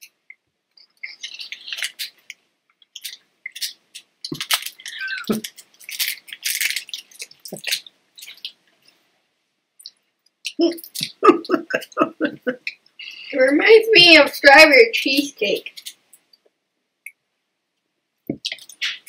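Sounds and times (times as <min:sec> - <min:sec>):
crisp snack crackling: 0:00.7 - 0:09.0, 0:18.4 - 0:19.0.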